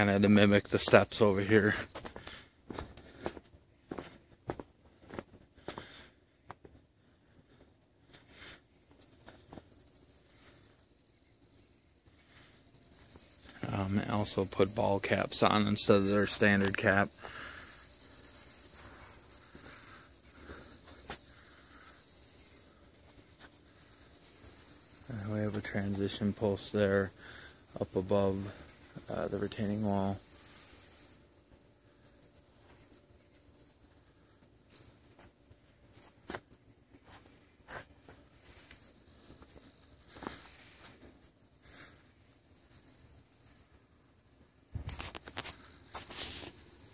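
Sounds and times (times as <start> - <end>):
crickets trilling: 0.0 - 46.9
soft scuffing: 2.0 - 5.9, 36.0 - 38.8.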